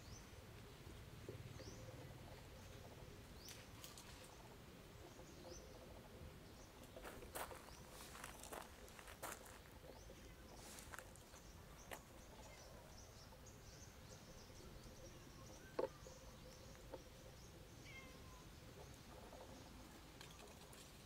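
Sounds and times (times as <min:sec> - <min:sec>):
faint bird chirps: 0:01.3 - 0:21.0
rustles in dry leaves: 0:07.4 - 0:09.6, 0:10.5 - 0:11.5.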